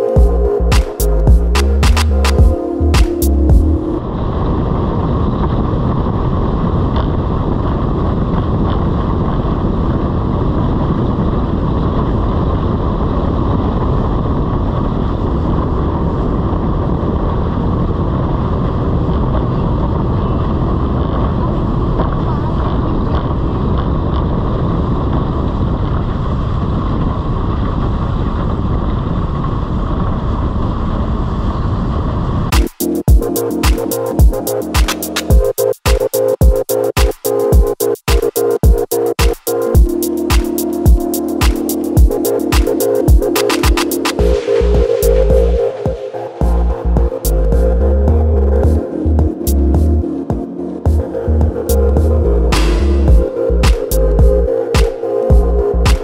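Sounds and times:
wind buffeting microphone: 0:04.0 - 0:34.4.

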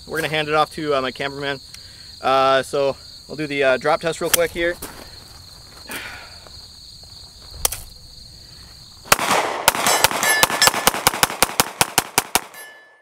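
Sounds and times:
magazine clacking on gravel: 0:04.2 - 0:05.9, 0:07.4 - 0:08.0
pistol firing rapid shots: 0:09.1 - 0:12.6.

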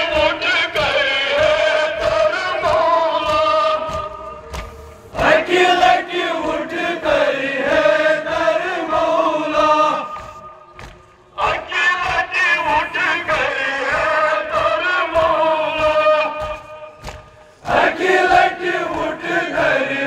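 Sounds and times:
men chanting a lament: 0:00.0 - 0:10.6, 0:11.3 - 0:20.0.

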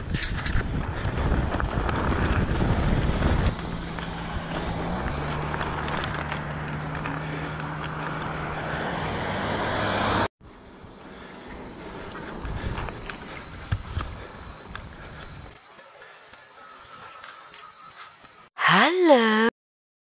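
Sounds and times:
wind on microphone: 0:00.0 - 0:05.1
bike tyres rumbling on dirt: 0:00.0 - 0:09.2, 0:10.6 - 0:15.5
tyres humming on asphalt: 0:00.0 - 0:18.6.

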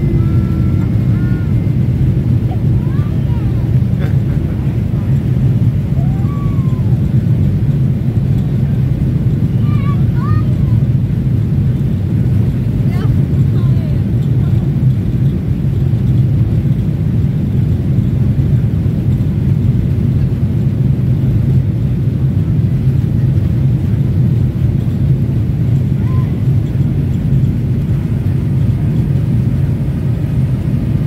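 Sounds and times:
rushing air: 0:00.0 - 0:08.1
airliner engines rumbling: 0:00.0 - 0:31.0.

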